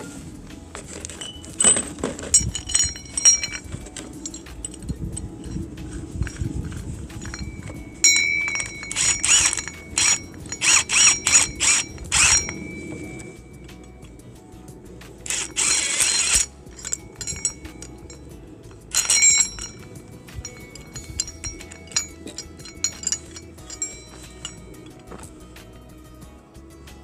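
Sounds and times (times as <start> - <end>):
high metallic ring: 0.9 - 14.3, 15.3 - 26.0
impact wrench bursts: 8.1 - 13.2, 15.3 - 17.9, 18.9 - 19.8.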